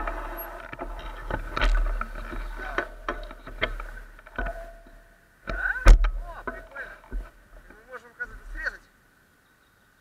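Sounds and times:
camera rattling and knocking: 0:00.0 - 0:05.0, 0:05.9 - 0:07.8.

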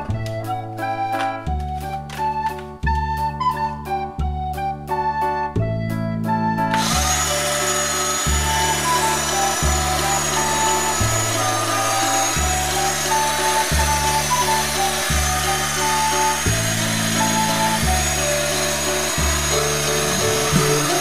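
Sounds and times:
looped background music: 0:00.0 - 0:21.0
toy grinder whirring: 0:06.7 - 0:21.0.

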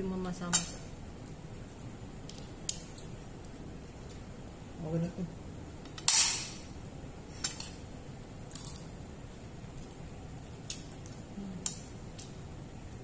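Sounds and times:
crab shell cracking: 0:01.2 - 0:04.4.

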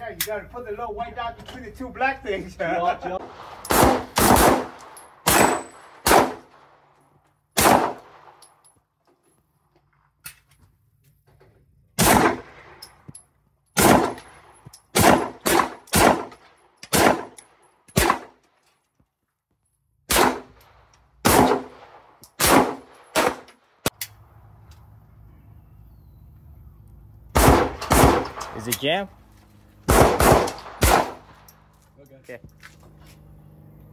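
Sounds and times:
pistol shots: 0:03.2 - 0:06.8, 0:07.6 - 0:08.4, 0:12.0 - 0:12.8, 0:13.8 - 0:18.4, 0:20.1 - 0:20.6, 0:21.2 - 0:23.9, 0:27.4 - 0:28.8, 0:29.9 - 0:31.5.

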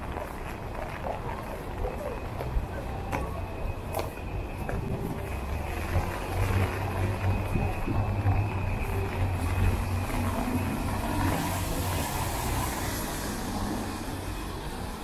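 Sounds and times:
traffic rumble: 0:00.0 - 0:15.0
tyres hissing on wet road: 0:09.1 - 0:15.0.

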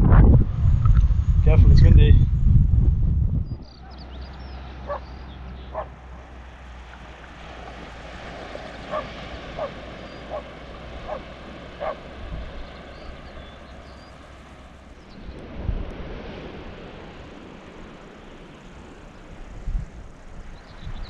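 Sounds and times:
steady low rumble: 0:00.0 - 0:21.0
faint high bird chirps: 0:03.5 - 0:05.9, 0:12.6 - 0:14.3
short animal calls: 0:04.8 - 0:05.1.

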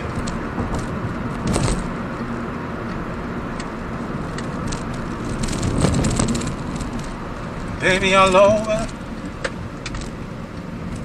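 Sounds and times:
car road and engine rumble: 0:00.0 - 0:11.0.

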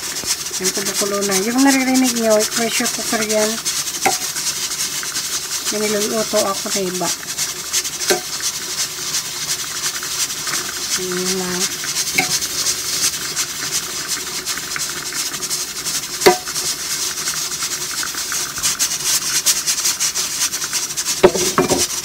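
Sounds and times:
pressure cooker hissing steam: 0:00.0 - 0:22.0.

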